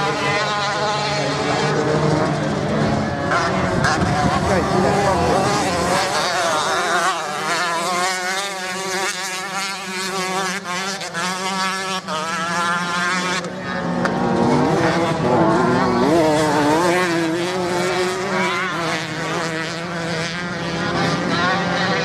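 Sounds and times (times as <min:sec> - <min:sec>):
steady low drone: 0:00.0 - 0:06.6
off-road motorcycle engines racing: 0:00.0 - 0:22.0.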